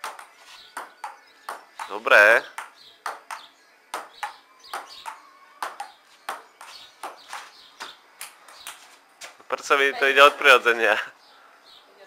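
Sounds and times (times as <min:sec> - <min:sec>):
table tennis ball tapping: 0:00.0 - 0:07.5.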